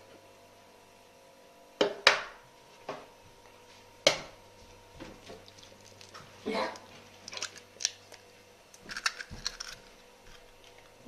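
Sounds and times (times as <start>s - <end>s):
eggshell crackles: 5.3s - 11.0s.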